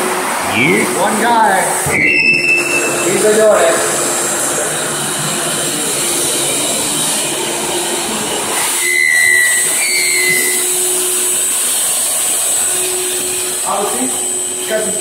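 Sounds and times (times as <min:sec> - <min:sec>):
shop vacuum motor running: 0:00.0 - 0:15.0
brief high whistles: 0:01.9 - 0:03.3, 0:08.6 - 0:11.0.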